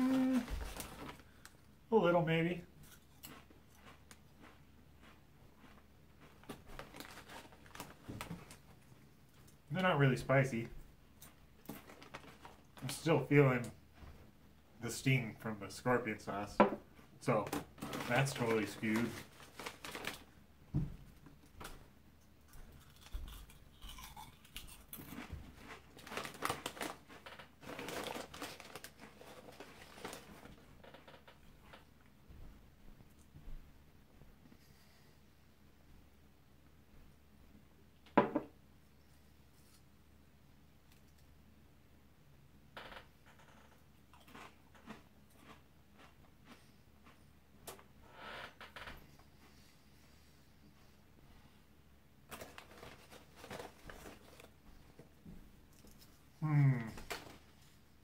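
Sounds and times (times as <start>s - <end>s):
crunching crackers: 0.0s - 1.7s, 2.8s - 9.6s, 11.2s - 13.0s, 17.2s - 20.3s, 22.4s - 31.8s, 43.5s - 47.8s, 52.2s - 55.0s
plastic snack bag crinkling: 0.0s - 1.7s, 6.4s - 9.0s, 11.6s - 13.0s, 17.2s - 20.4s, 22.8s - 30.6s, 52.2s - 54.6s.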